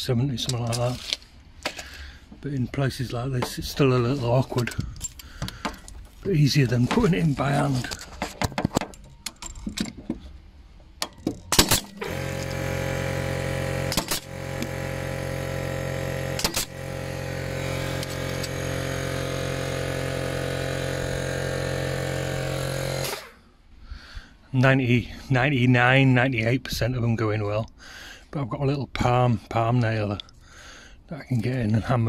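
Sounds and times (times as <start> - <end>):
air compressor motor humming: 1.7 - 8.6, 11.5 - 23.4
nail gun firing: 11.0 - 23.3.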